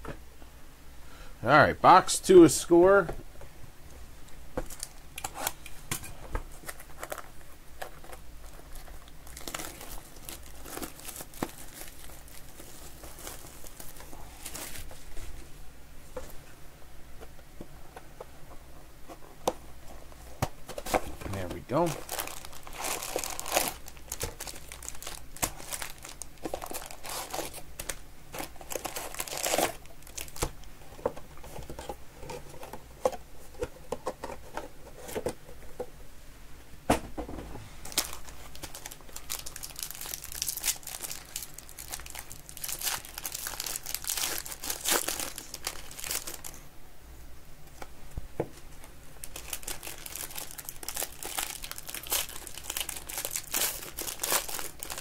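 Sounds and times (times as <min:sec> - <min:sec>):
crinkling of pack wrappers: 0:04.6 - 0:05.7, 0:06.5 - 0:15.2, 0:20.7 - 0:30.7, 0:37.8 - 0:46.6, 0:48.8 - 0:55.0
packs tearing open: 0:06.6 - 0:14.8, 0:20.8 - 0:30.5, 0:37.8 - 0:46.5, 0:49.2 - 0:55.0.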